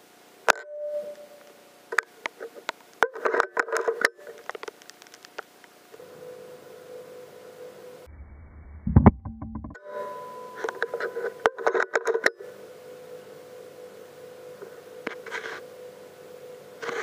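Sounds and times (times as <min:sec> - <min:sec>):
faint steady hum: 0:00.0 - 0:17.0
sharp clicks and light knocks: 0:02.0 - 0:05.8.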